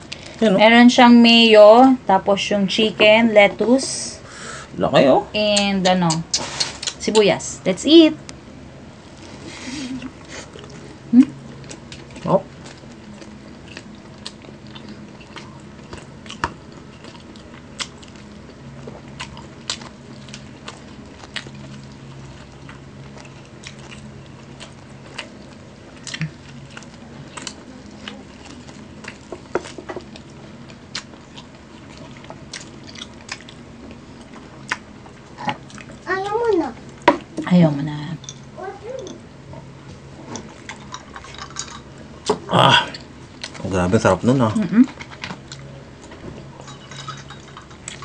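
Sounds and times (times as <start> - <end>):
faint low hum: 0.0 - 48.0
wet mouth clicks and smacks: 5.6 - 7.0
people chewing and biting: 5.6 - 7.1, 9.1 - 36.1, 44.8 - 48.0.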